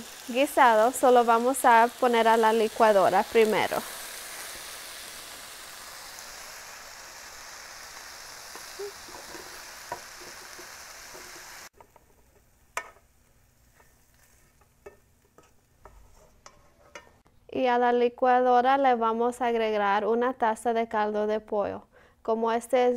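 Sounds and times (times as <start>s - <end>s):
vegetables sizzling in a frying pan: 0.0s - 16.2s.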